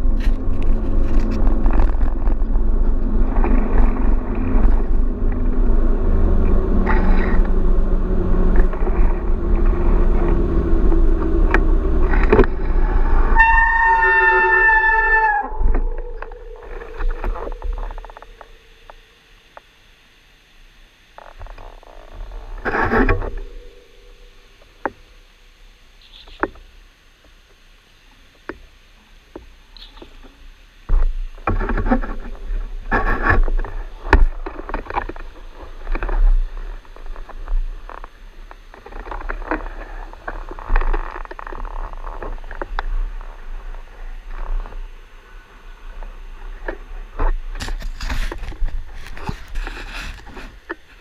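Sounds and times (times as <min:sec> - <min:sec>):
bike clicks and rattles: 0:00.0 - 0:05.4, 0:46.5 - 0:51.0.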